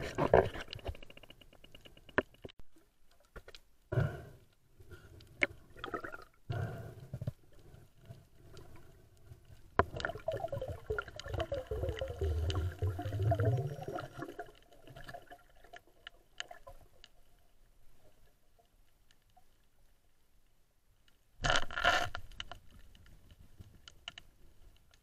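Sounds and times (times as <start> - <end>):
underwater water movement: 4.8 - 18.4
gurgling bubbles: 9.9 - 15.7.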